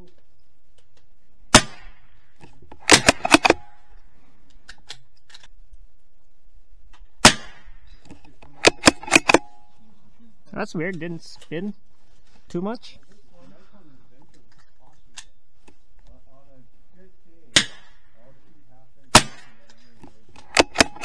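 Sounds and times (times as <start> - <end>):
gunshots: 1.5 - 2.2, 2.8 - 3.9, 7.2 - 7.8, 8.5 - 9.7, 17.5 - 18.3, 19.1 - 19.8, 20.4 - 21.0.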